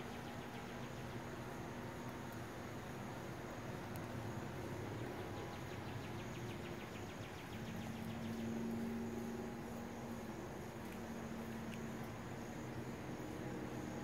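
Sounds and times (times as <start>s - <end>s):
low steady hum: 0.0s - 14.0s
insect pulsed trill: 5.4s - 14.0s.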